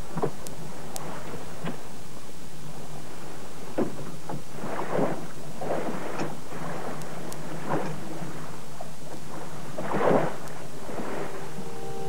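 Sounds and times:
steady low hum: 6.4s - 12.0s.

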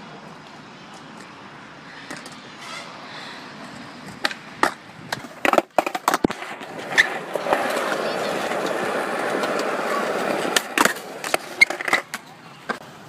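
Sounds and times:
skateboard wheels rolling: 0.2s - 13.0s
skateboard clacks on concrete: 4.0s - 12.9s.

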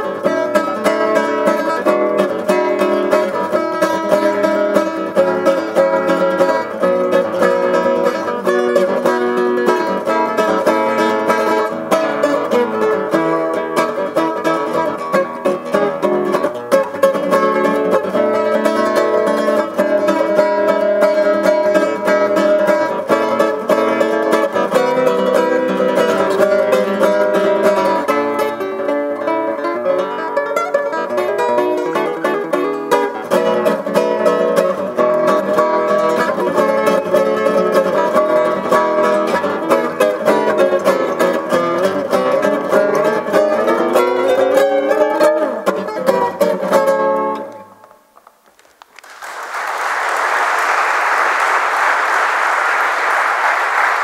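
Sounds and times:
classical guitar playing: 0.0s - 48.2s
audience applauding: 48.4s - 54.0s.

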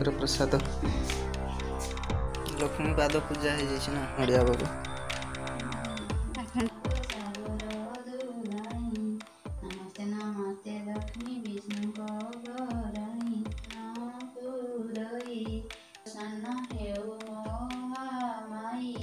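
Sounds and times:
light clicking percussion: 0.0s - 19.0s
woman singing: 6.4s - 19.0s.

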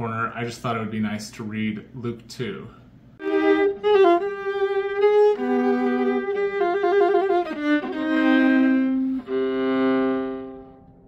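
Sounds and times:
bowed string music with violin: 3.2s - 11.0s.

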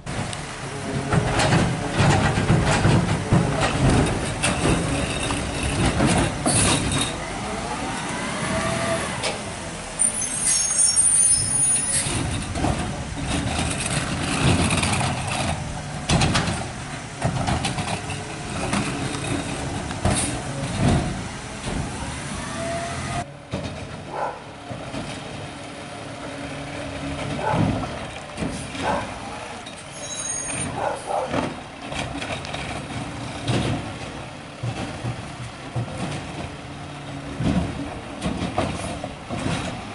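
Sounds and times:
garbage truck diesel engine: 0.0s - 39.9s
air brakes hissing: 8.2s - 12.2s.

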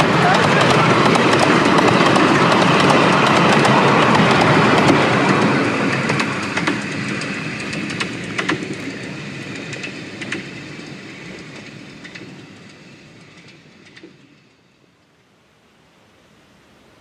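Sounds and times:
wheels clicking over rail joints: 0.0s - 14.8s
miniature steam train running: 0.0s - 15.2s.

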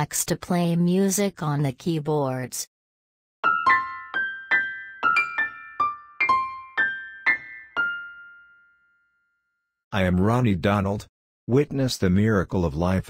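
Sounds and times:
high piano notes melody: 3.4s - 9.1s.

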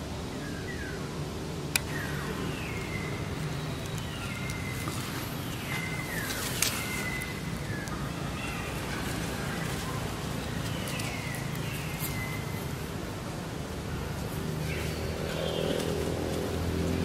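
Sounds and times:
sharp clicks: 1.7s - 2.1s.

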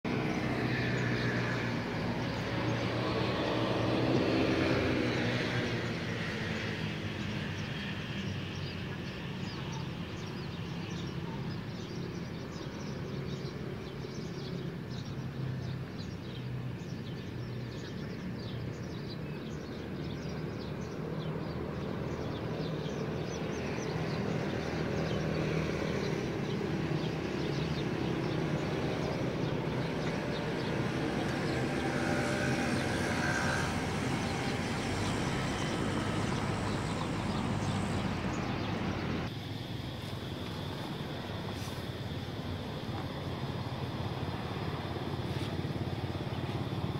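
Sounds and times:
city traffic noise: 0.0s - 46.9s
vehicle passing by: 0.1s - 10.1s, 15.4s - 39.3s.

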